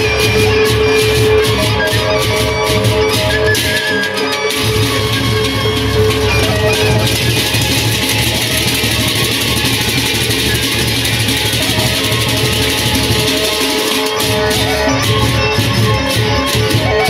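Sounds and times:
drum beats: 0:00.0 - 0:17.0
hand cymbals clashing: 0:04.2 - 0:16.9.

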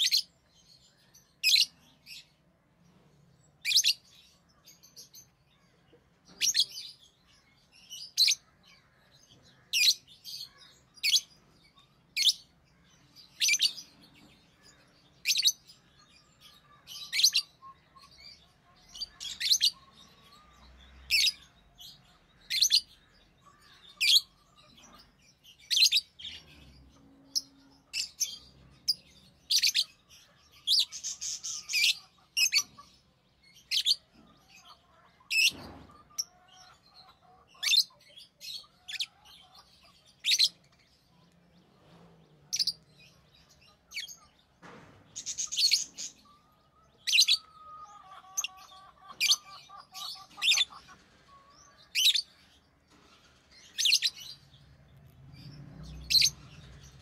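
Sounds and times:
lovebirds chirping: 0:00.0 - 0:57.0.

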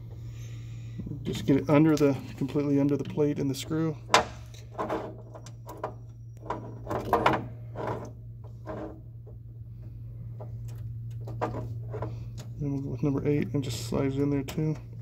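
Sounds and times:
steady low hum: 0:00.0 - 0:15.0
wires clicking and scraping: 0:01.2 - 0:13.0.

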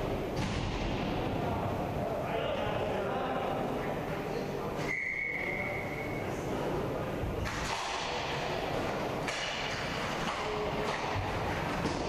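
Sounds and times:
whistle blast: 0:04.8 - 0:06.2.

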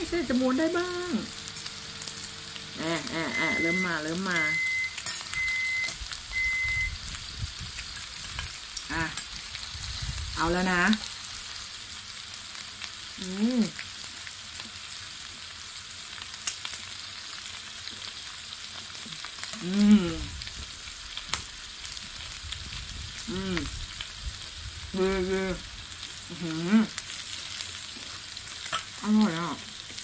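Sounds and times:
meat sizzling in a pan: 0:00.0 - 0:30.0
person humming: 0:19.5 - 0:20.4, 0:23.2 - 0:23.8, 0:25.0 - 0:25.7, 0:26.3 - 0:27.0.

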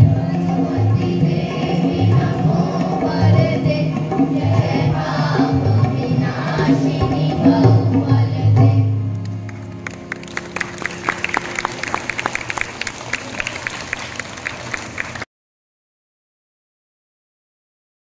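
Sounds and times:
children's choir singing: 0:00.0 - 0:09.0
applause: 0:09.2 - 0:15.3.

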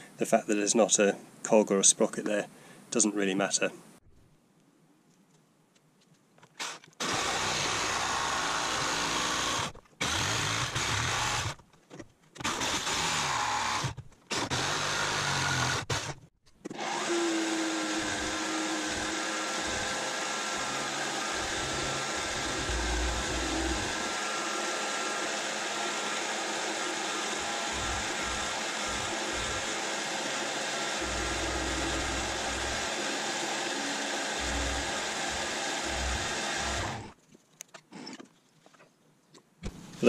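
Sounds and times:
jigsaw cutting wood: 0:06.6 - 0:11.6, 0:12.4 - 0:37.2
milling machine cutting wood: 0:07.0 - 0:11.6, 0:16.7 - 0:37.2.

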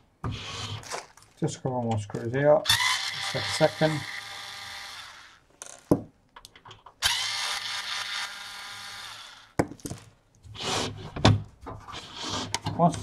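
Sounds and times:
electric screwdriver whirring: 0:02.7 - 0:05.4, 0:07.0 - 0:09.5.

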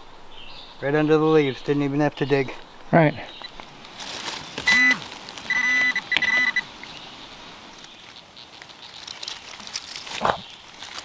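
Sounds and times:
metal detector beeps: 0:04.6 - 0:06.7.

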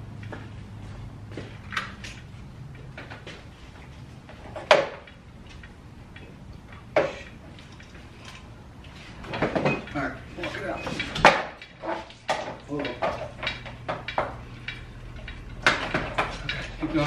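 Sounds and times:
tools knocking and clanking: 0:04.3 - 0:08.5, 0:09.2 - 0:17.0.

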